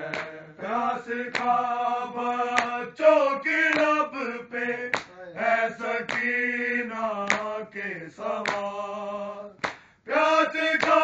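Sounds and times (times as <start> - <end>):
men singing in chorus: 0.0 - 11.0
chest-beating slaps: 0.1 - 0.4, 1.3 - 1.6, 4.9 - 5.2, 6.1 - 6.4, 7.2 - 7.5, 8.4 - 8.7, 9.6 - 9.9, 10.8 - 11.0.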